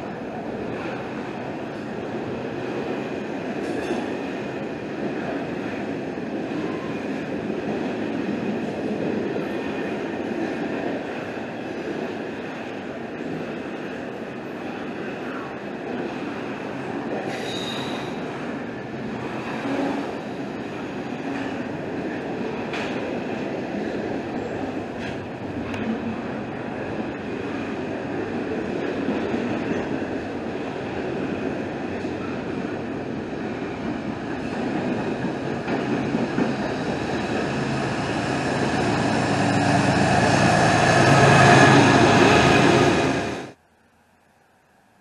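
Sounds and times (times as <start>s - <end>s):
freight train rolling past: 0.0s - 43.6s
steel wheels clattering on rail: 2.6s - 5.8s, 17.0s - 18.4s, 19.2s - 43.5s.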